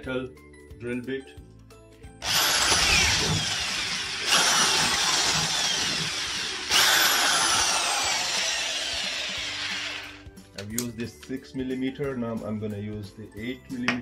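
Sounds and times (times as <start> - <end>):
electric drill whining: 2.2 - 10.3.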